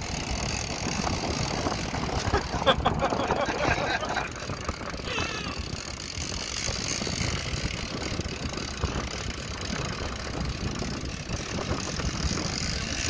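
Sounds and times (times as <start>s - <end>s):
boat engine running: 0.0s - 13.0s
wind on microphone: 0.0s - 13.0s.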